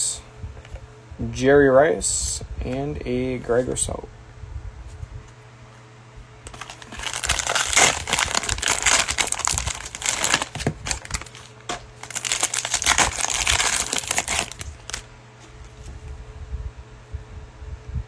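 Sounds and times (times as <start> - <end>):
plastic wrapper crinkling and tearing: 6.5 - 15.1.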